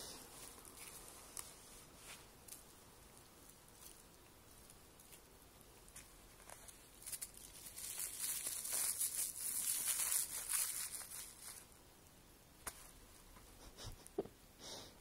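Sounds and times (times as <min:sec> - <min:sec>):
plastic bag crinkling: 0:03.3 - 0:11.8.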